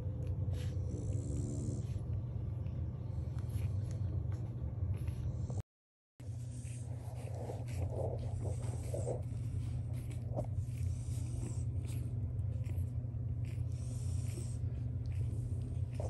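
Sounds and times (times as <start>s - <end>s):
steady low hum: 0.0s - 5.6s, 6.2s - 16.0s
puppies grunting: 6.6s - 16.0s.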